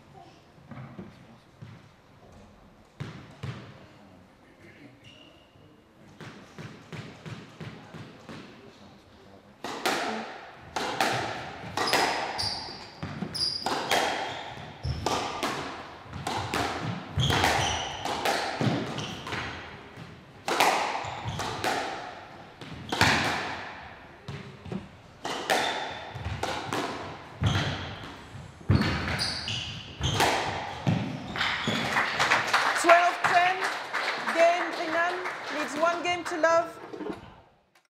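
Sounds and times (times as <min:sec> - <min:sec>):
shoes squeaking on floor: 0:05.0 - 0:05.8, 0:11.6 - 0:15.4, 0:16.1 - 0:19.6, 0:20.9 - 0:21.6, 0:27.2 - 0:32.0
squash ball cracking off rackets: 0:09.6 - 0:29.4, 0:30.0 - 0:32.0.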